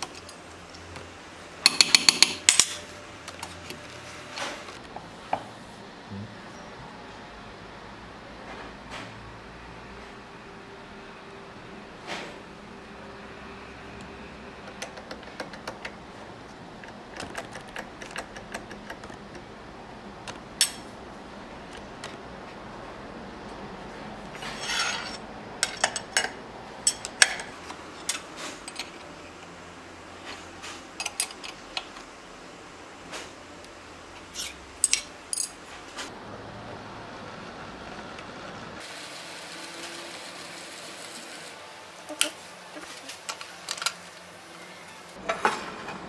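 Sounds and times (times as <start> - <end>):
metal wrenches clinking: 24.4 - 29.0, 34.4 - 35.6.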